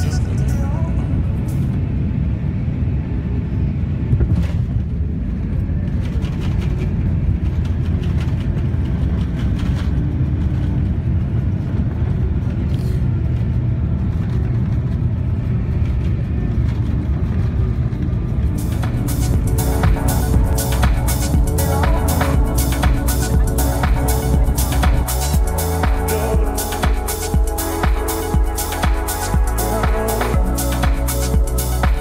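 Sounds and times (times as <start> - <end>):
airliner cabin rumble: 0.0 - 32.0.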